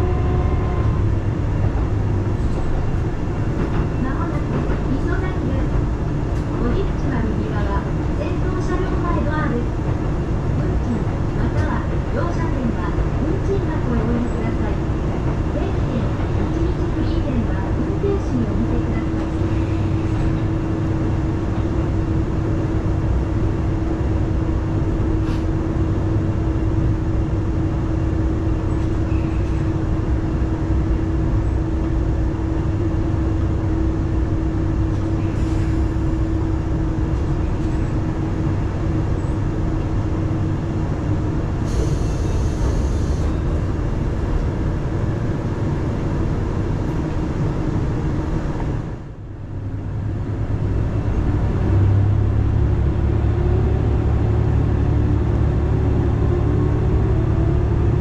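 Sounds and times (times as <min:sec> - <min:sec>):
railcar low rumble: 0:00.0 - 0:58.0
engine drone: 0:49.0 - 0:58.0.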